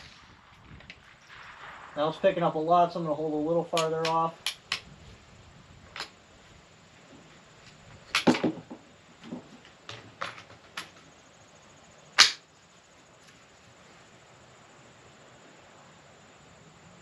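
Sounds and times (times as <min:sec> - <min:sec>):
rifle shots: 0:00.0 - 0:04.8.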